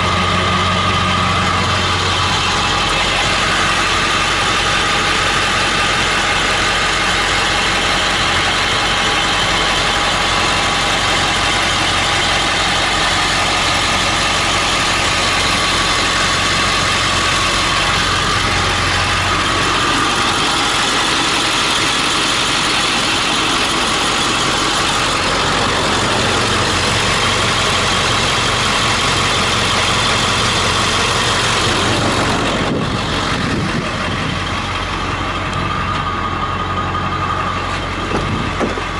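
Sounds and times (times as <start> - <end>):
diesel engine idling: 0.0 - 38.9.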